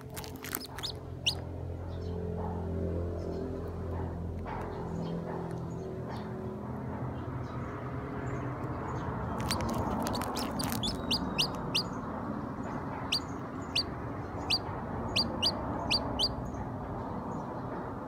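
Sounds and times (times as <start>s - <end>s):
chick peeping: 0.1s - 1.4s, 9.4s - 12.0s, 13.0s - 16.4s
sharp high clicks: 9.4s - 11.8s.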